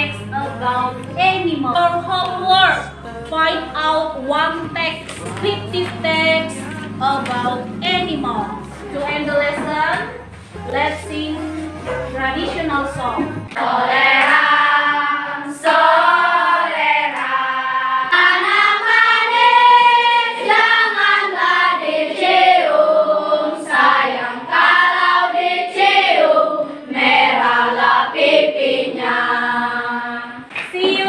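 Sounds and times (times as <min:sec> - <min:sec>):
children singing together: 0:13.2 - 0:31.0.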